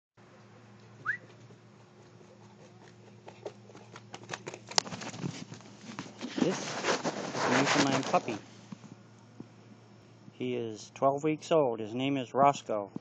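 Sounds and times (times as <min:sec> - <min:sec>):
puppy scuffling: 0:00.8 - 0:08.4.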